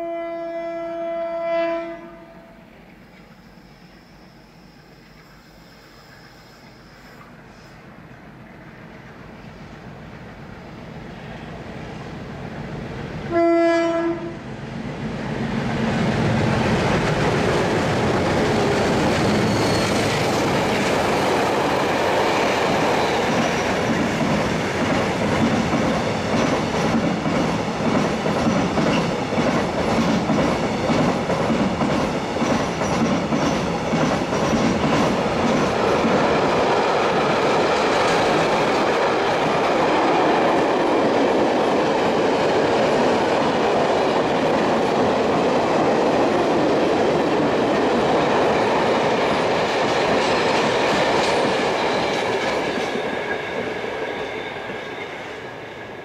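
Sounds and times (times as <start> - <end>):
freight train rumble and rail hiss: 0.0 - 56.0
train wheels clicking over rail joints: 16.7 - 54.0.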